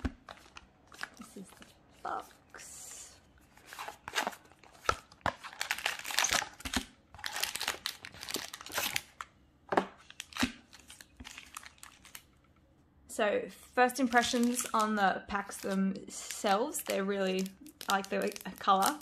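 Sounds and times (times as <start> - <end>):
foil packs crinkling: 3.7 - 9.3, 10.0 - 12.3, 14.1 - 19.0.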